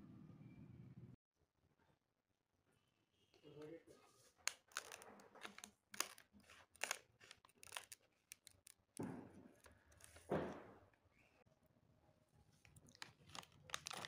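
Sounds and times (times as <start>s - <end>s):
crinkling cuts through wrapper: 4.4s - 10.3s, 12.6s - 14.0s
scissors snipping plastic wrapper: 4.5s - 10.3s, 12.8s - 14.0s.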